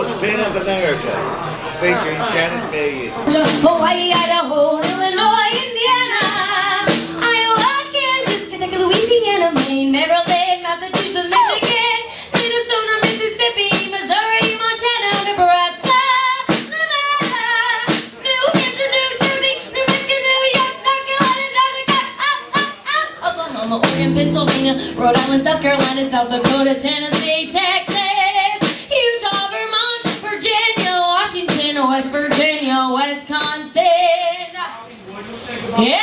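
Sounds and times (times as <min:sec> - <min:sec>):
snare drum beat: 0:03.3 - 0:05.0
strummed acoustic guitar: 0:03.3 - 0:10.4, 0:23.5 - 0:27.3
woman singing: 0:03.3 - 0:34.6.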